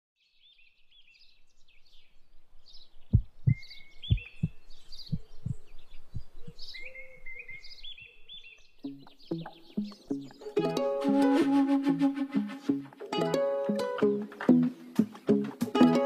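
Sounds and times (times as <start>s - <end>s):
bird chirps: 0.2s - 10.7s
low heartbeat-like double thump: 3.1s - 6.6s
music soundtrack: 8.8s - 16.0s.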